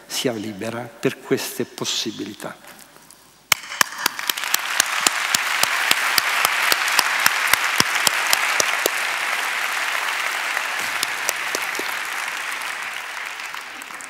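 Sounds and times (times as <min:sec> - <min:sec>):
single person clapping steadily: 0:03.5 - 0:14.0
audience applauding: 0:03.8 - 0:14.0.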